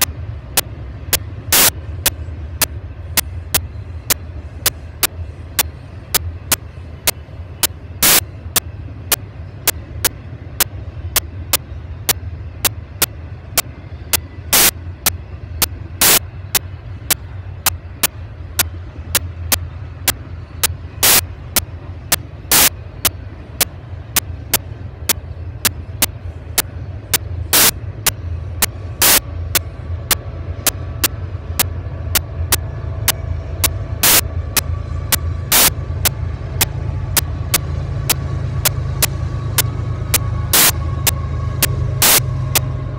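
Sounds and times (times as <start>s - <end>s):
faint steady tone: 0.0s - 42.9s
low rumble: 0.0s - 42.9s
sharp even clicking: 14.5s - 14.7s, 20.6s - 26.7s, 29.0s - 42.8s.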